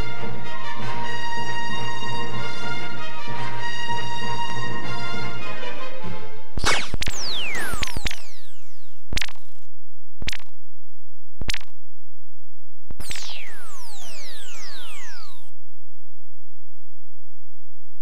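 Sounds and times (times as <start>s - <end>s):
low hum: 6.4s - 18.0s
lightsaber hits: 6.6s - 9.6s.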